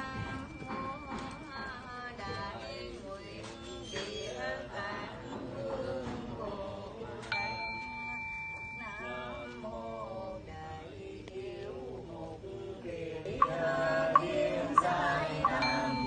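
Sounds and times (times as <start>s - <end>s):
bell ringing: 0.0s - 2.2s, 7.3s - 10.2s, 13.4s - 16.0s
prayer chanting: 0.0s - 16.0s.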